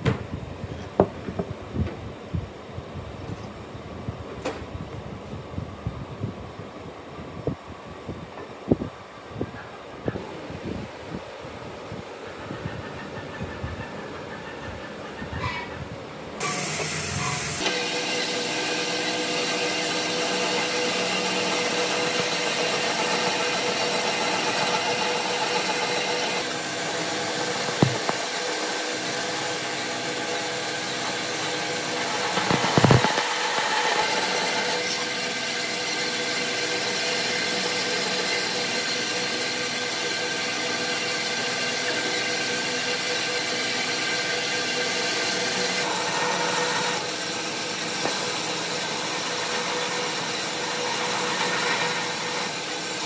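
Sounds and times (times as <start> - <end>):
bandsaw cutting wood: 16.4 - 53.0
short knock: 27.7 - 28.2.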